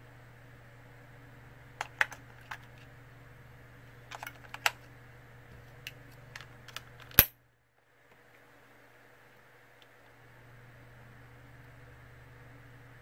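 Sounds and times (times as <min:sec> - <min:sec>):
battery cover snapping shut: 0:06.7 - 0:07.3.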